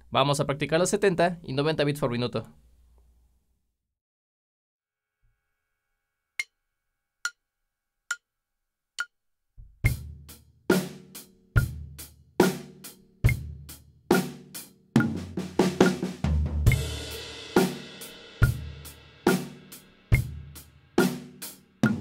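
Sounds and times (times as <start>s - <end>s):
drum kit fill: 9.7s - 22.0s.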